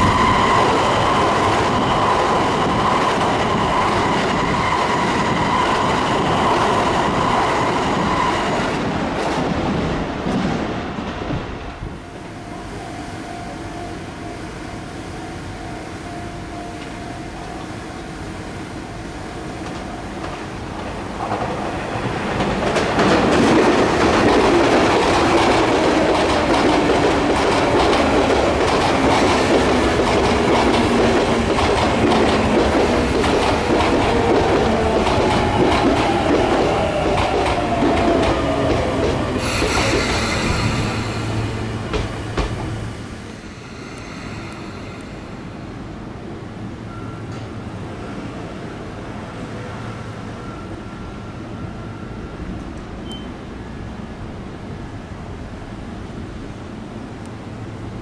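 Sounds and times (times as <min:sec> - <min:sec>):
train wheels clattering on rails: 0:19.6 - 0:45.9
high-pitched hiss: 0:39.4 - 0:46.3.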